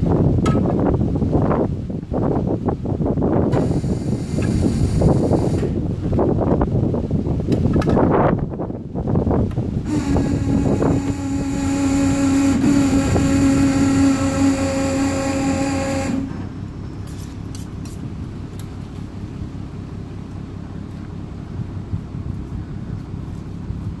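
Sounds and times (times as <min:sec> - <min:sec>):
hoist motor running: 0:09.8 - 0:17.7.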